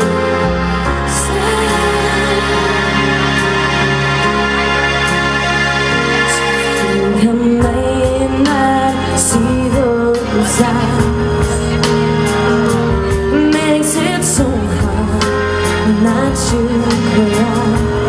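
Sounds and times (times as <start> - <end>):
instrumental backing track: 0.0 - 18.0
woman singing pop song: 0.9 - 3.5, 6.3 - 18.0.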